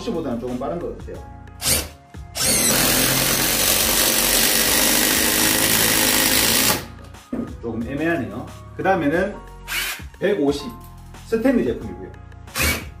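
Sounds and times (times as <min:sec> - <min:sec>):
impact driver hammering: 0:01.6 - 0:06.9, 0:12.5 - 0:12.9.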